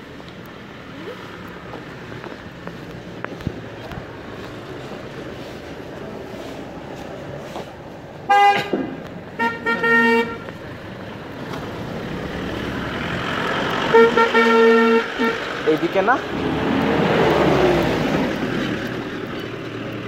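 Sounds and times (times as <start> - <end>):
car passing: 0.0 - 20.0
car horns tooting: 8.2 - 10.6, 13.8 - 16.0.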